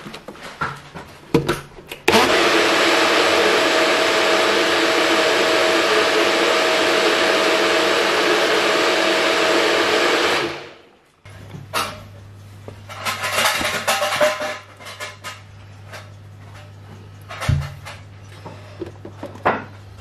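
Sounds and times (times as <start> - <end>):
blender motor whining: 2.0 - 10.9.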